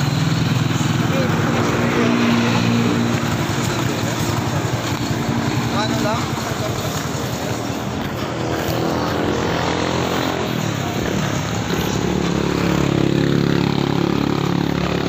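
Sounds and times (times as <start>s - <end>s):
motor vehicle engine running: 0.0s - 15.0s.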